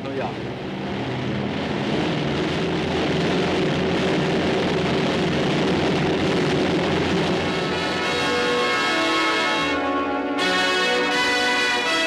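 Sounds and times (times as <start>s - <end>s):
broad rushing noise: 0.0s - 12.0s
piston engines drone: 0.0s - 12.0s.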